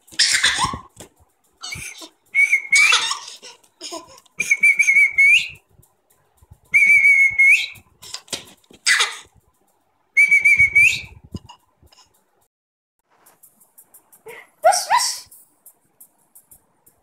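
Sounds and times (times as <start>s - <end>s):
baby squealing: 0.2s - 0.9s, 1.6s - 4.1s, 8.8s - 9.3s
person whistling high note: 6.7s - 7.8s, 10.2s - 11.1s.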